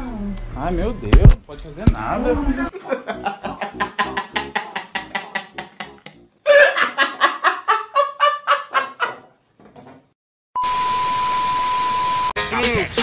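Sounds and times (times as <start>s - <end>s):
high-pitched cackling laugh: 2.7s - 9.3s
man laughing: 2.7s - 9.3s.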